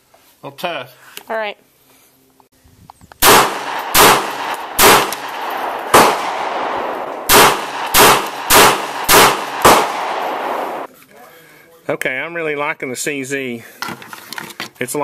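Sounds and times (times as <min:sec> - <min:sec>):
pistol shots with ringing echo: 0:03.2 - 0:10.9.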